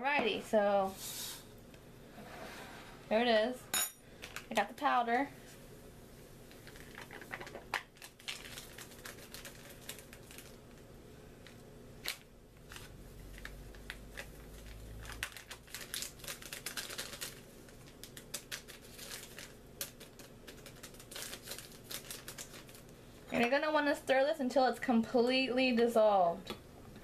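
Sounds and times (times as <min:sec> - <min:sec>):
paper packet crinkling: 0:06.6 - 0:10.8, 0:11.5 - 0:22.9.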